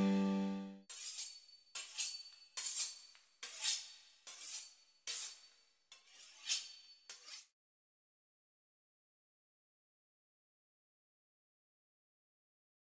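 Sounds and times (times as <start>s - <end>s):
held music chord: 0.0s - 0.8s
knife slicing pastry crust: 0.9s - 7.5s.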